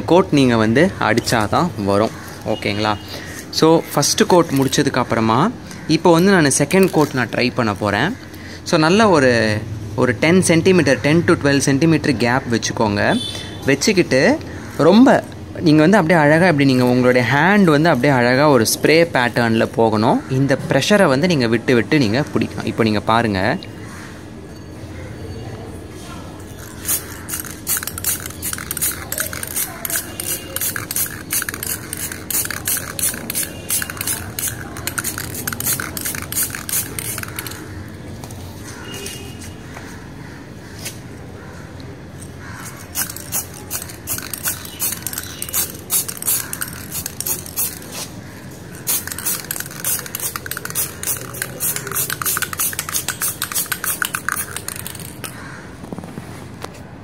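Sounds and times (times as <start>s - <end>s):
spray paint can hissing: 6.6s - 7.2s, 26.5s - 37.7s, 42.7s - 55.4s.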